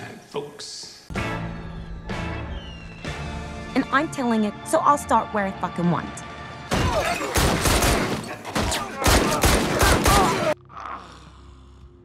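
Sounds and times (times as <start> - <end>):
rapid gunfire: 7.3 - 10.6.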